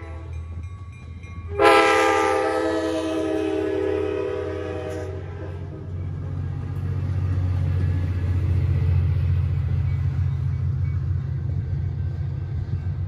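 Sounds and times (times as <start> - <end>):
train horn chord: 0.0 - 0.4, 1.5 - 5.8
diesel locomotive engine drone: 0.0 - 13.0.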